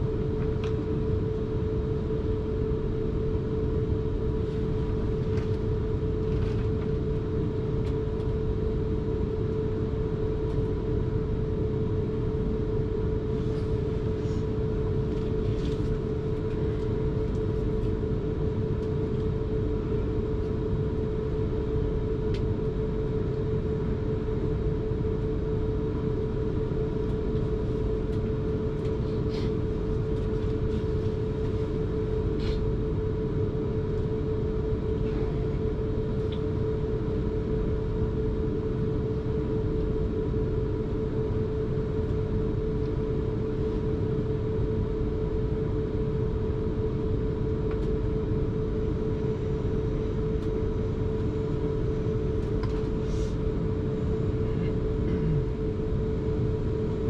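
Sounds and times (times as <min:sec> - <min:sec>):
train rumble inside carriage: 0:11.6 - 0:23.4, 0:26.5 - 0:32.8, 0:33.4 - 0:37.2, 0:48.8 - 0:55.8.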